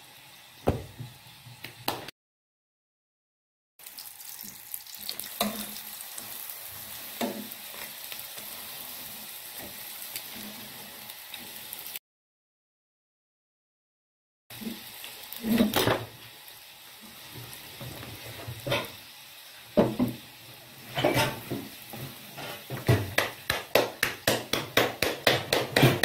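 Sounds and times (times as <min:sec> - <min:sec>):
flatbread sizzling in a pan: 0:03.8 - 0:12.0, 0:14.5 - 0:25.1
metal spatula knocking on pan: 0:22.8 - 0:26.0.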